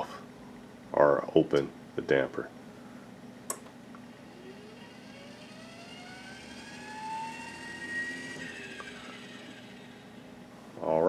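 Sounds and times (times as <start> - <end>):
steady low hum: 0.0 - 11.0
damper motor whine: 4.0 - 10.6.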